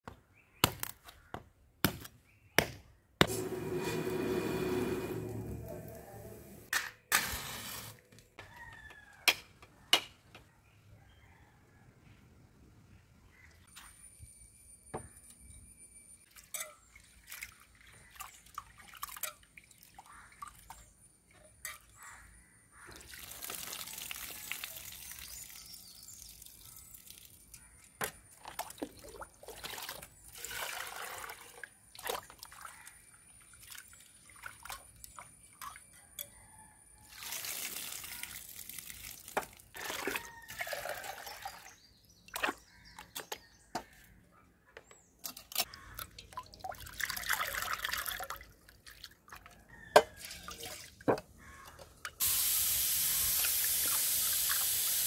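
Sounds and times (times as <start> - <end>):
water splashing onto ground: 22.9 - 27.4, 37.1 - 40.1.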